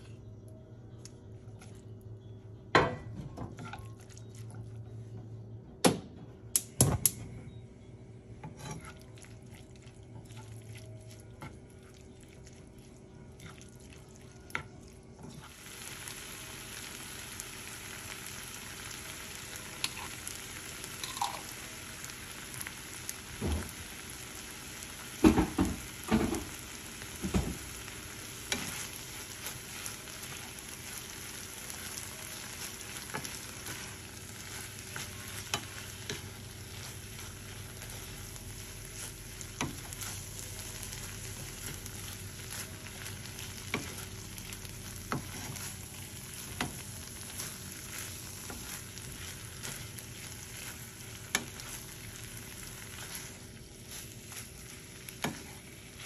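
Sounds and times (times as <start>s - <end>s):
meat sizzling: 15.4s - 56.0s.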